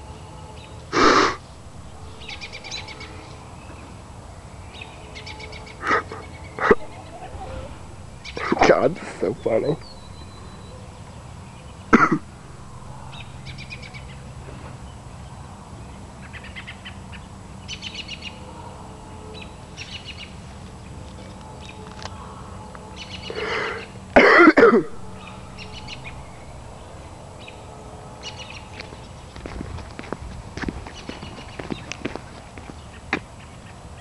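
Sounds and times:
small birds chirping: 0.6 - 18.4, 25.1 - 33.8
person coughing loudly: 5.8 - 6.9, 12.0 - 12.3, 24.2 - 25.0.

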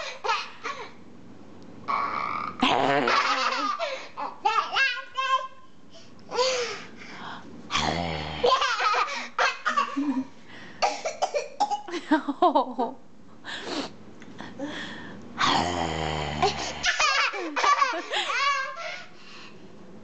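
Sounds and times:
toddler laughing hysterically: 3.0 - 4.1, 8.4 - 10.2, 16.8 - 19.1
adult growling: 7.7 - 8.6, 15.4 - 16.9.

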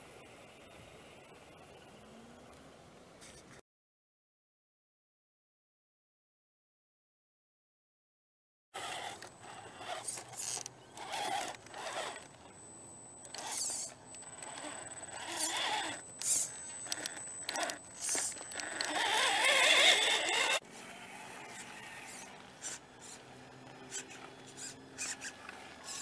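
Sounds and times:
tyres scraping: 8.8 - 12.6, 13.2 - 20.9
rc car motor and gears whining: 8.8 - 26.0
thin high whine: 8.8 - 26.0.

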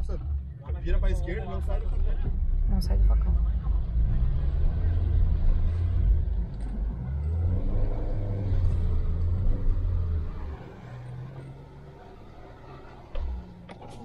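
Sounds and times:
off-road vehicle engine rumbling: 0.0 - 14.0.

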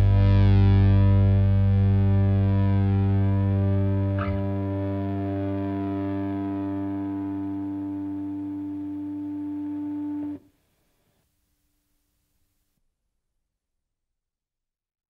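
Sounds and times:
distorted electric guitars and bass: 0.0 - 10.4.

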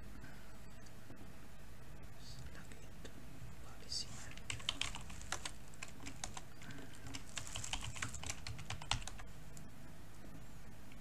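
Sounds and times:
typing on computer keyboard: 4.3 - 9.2.

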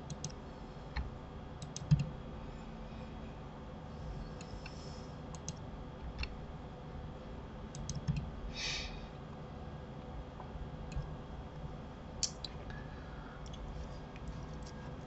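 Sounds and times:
keyboard and mouse clicks: 0.0 - 0.4, 1.0 - 2.1, 4.4 - 5.6, 7.7 - 8.3, 12.2 - 12.6
short breathy hiss: 8.5 - 9.0.

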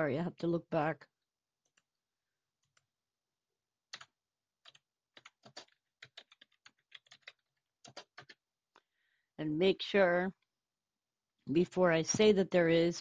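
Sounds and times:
typing on a keyboard: 3.9 - 8.4.

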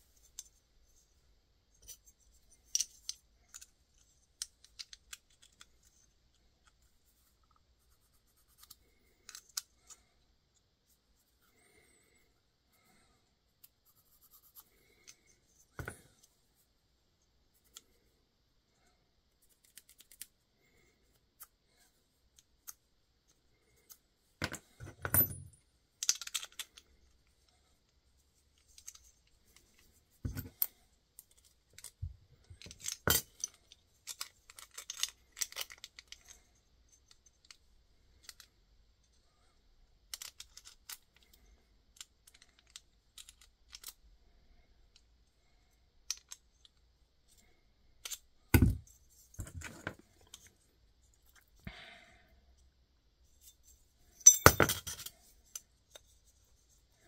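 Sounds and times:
small metal hardware clinking: 24.4 - 26.8, 32.6 - 35.8, 53.4 - 55.6.

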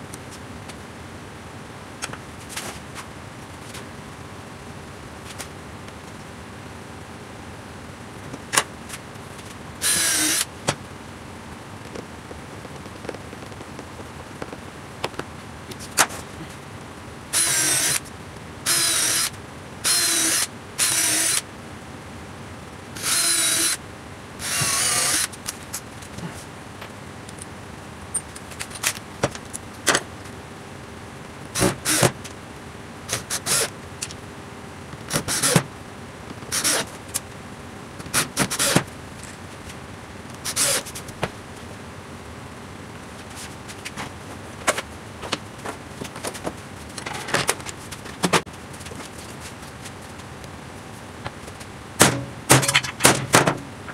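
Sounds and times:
cordless drill driving screws: 9.8 - 10.5, 17.4 - 18.0, 18.7 - 21.4, 23.0 - 23.8, 24.4 - 25.3.

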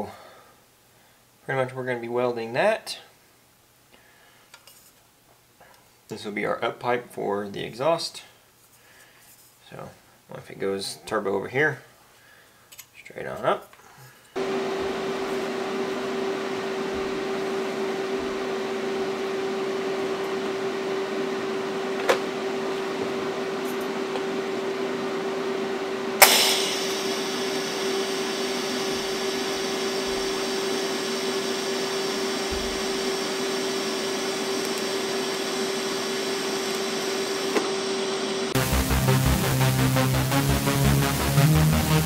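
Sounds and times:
machine hum: 14.4 - 42.0
higher hiss: 26.2 - 31.4.

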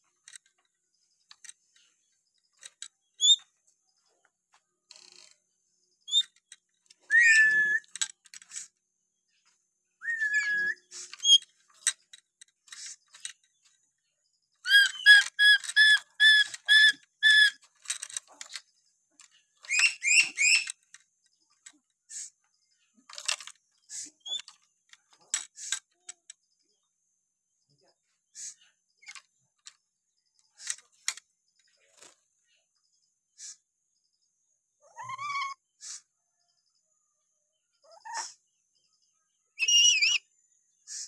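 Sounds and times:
bird chirps and clicks: 0.0 - 8.8, 9.4 - 13.9, 14.5 - 26.9, 27.8 - 32.2, 39.6 - 40.3
parrot whistling: 7.1 - 7.9, 10.0 - 10.8.

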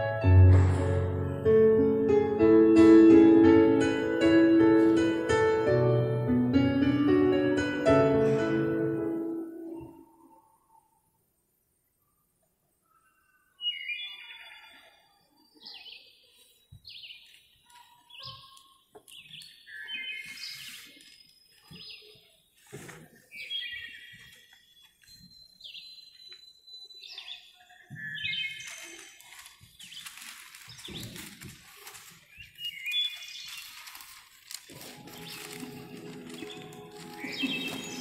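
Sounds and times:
bird chirping: 12.2 - 22.6, 23.3 - 34.1, 34.9 - 38.0.

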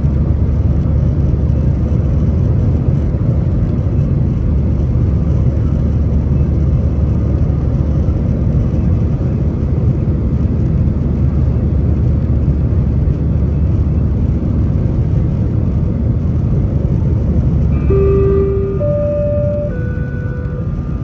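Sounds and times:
airplane cabin engine rumble: 0.0 - 21.0
steady held tone: 17.7 - 21.0.

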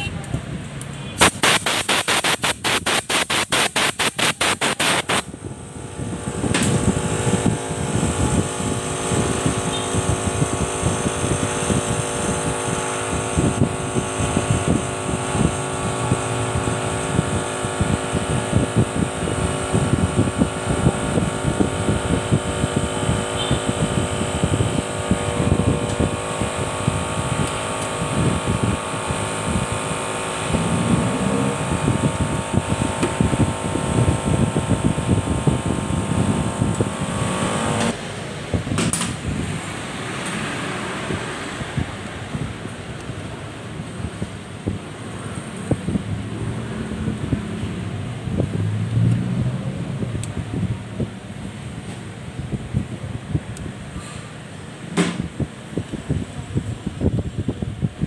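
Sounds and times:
steady hum: 1.1 - 46.1.

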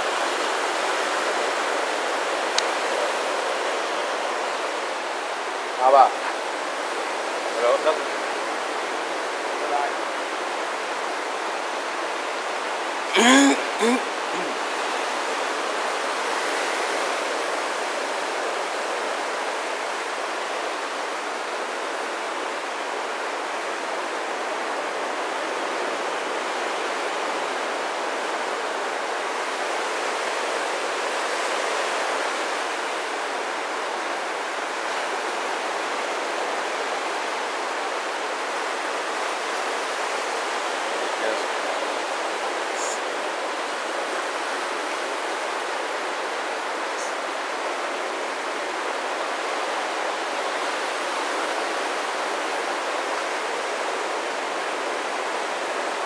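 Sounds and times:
brief falling vocal sound: 13.1 - 14.6.

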